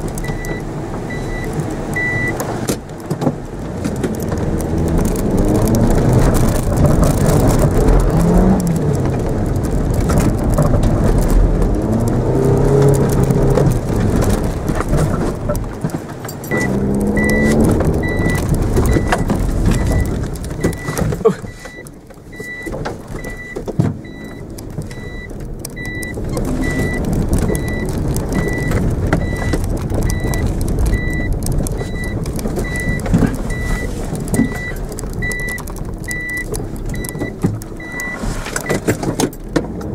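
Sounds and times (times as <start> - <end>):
car engine revving: 0.0 - 21.6.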